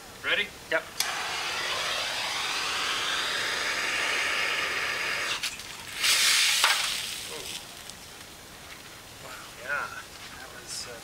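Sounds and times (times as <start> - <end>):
propane torch hissing: 1.0 - 8.1.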